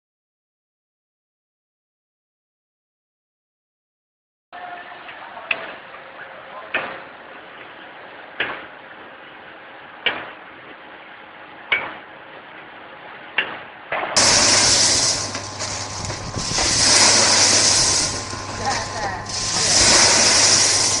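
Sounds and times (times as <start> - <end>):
machine rush with low hum: 14.2 - 21.0.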